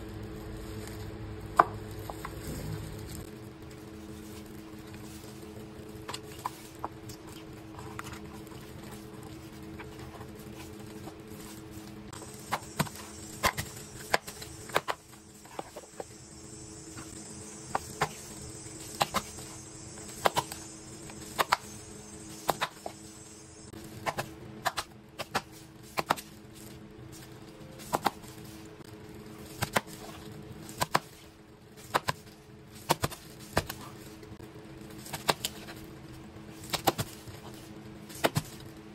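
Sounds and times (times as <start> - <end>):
low hum: 0.0 - 24.1.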